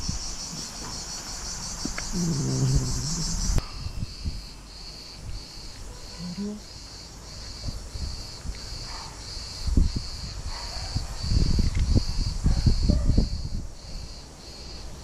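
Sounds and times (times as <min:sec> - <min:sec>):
insects chirping: 0:00.0 - 0:15.0.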